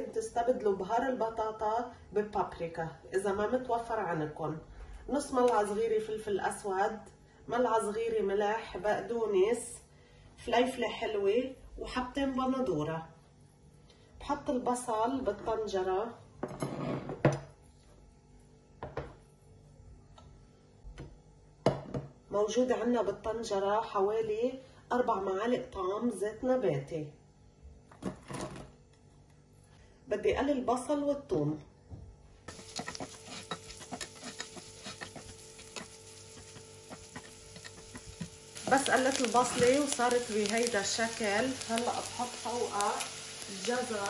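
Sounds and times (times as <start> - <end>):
dishes knocking on a table: 18.8 - 19.2, 21.6 - 22.1
onion sizzling in hot oil: 32.5 - 44.0.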